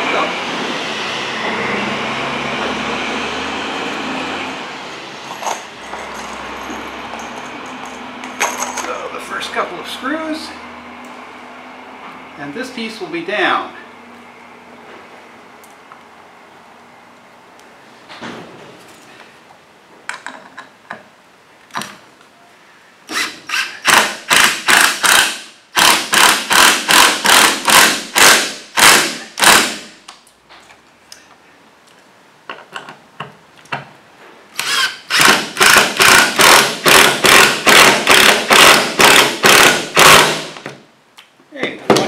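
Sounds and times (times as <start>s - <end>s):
cordless drill driving screws: 23.1s - 29.7s, 34.6s - 40.4s.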